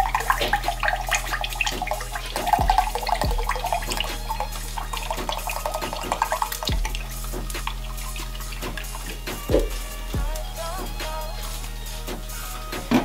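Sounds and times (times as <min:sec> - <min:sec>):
liquid pouring into glass: 0:00.0 - 0:09.7.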